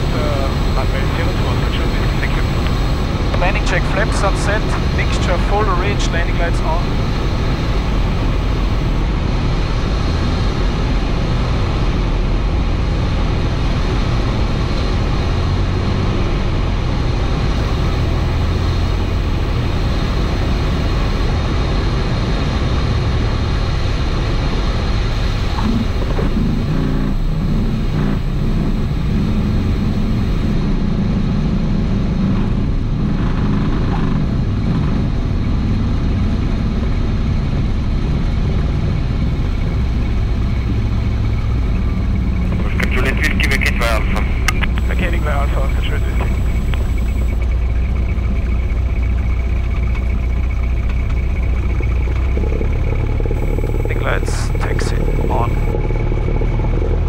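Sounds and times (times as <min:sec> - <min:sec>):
plane engine and propeller droning: 0:00.0 - 0:57.0.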